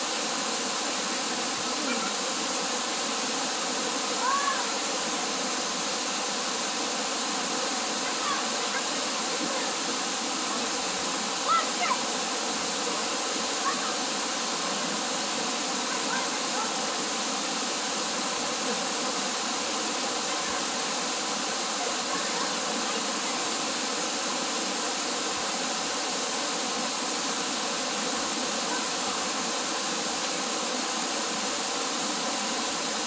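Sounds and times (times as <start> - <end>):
waterfall splashing onto rocks: 0.0 - 33.0.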